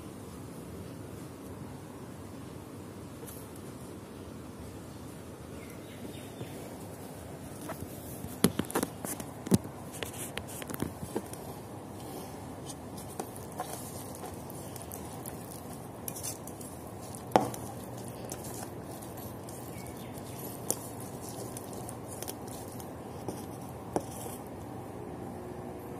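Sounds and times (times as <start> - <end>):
background hiss: 0.0 - 25.9
hands mixing garlic in oil: 8.2 - 24.6.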